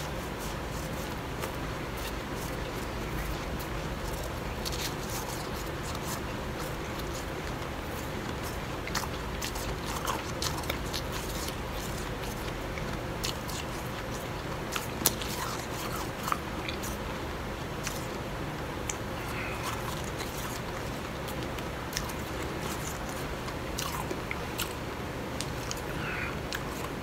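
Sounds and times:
chewing crunching ice: 0.0s - 27.0s.

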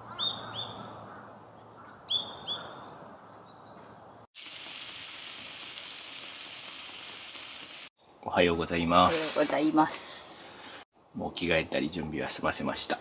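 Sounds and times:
bird calling sharply: 0.0s - 2.9s
toast sizzling in a frying pan: 4.4s - 7.9s.

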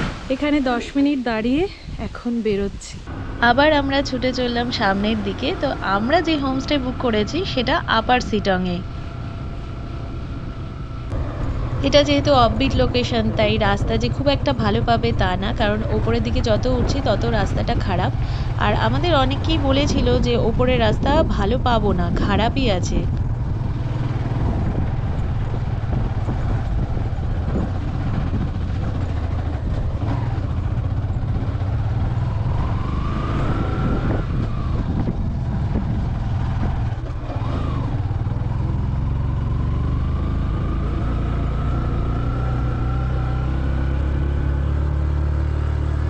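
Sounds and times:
heavy low rumble: 0.0s - 46.0s
motorcycle engine accelerating: 3.0s - 46.0s.

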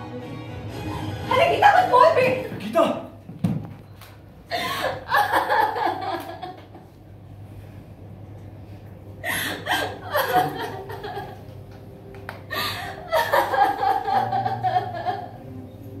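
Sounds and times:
woman sobbing: 4.5s - 6.0s, 9.2s - 11.4s, 12.5s - 15.4s.

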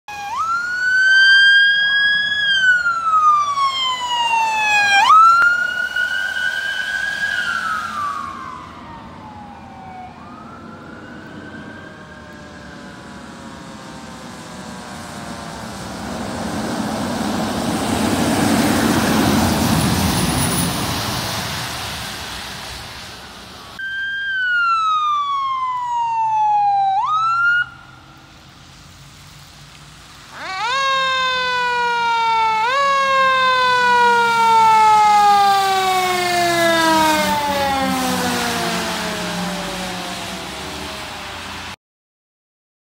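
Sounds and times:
electronic siren wailing: 0.1s - 13.1s, 23.8s - 28.2s, 30.3s - 40.2s
rushing hiss: 19.3s - 23.8s.

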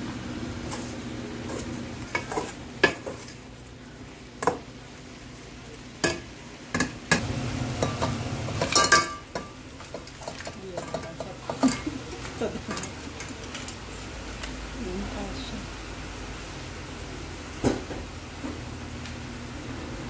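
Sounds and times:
shrimp sizzling in a pot: 0.0s - 19.7s
ladle clinking and scraping pot: 0.7s - 3.4s, 7.8s - 13.8s
crabs clattering into pot: 6.0s - 13.8s.

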